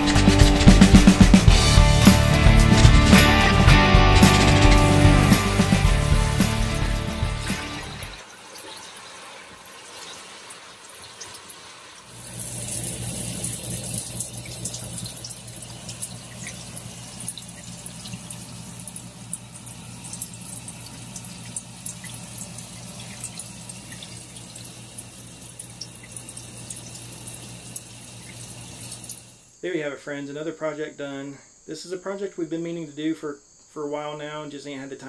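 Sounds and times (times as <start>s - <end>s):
low hum: 0.0s - 8.2s
shower head spraying water: 0.0s - 29.4s.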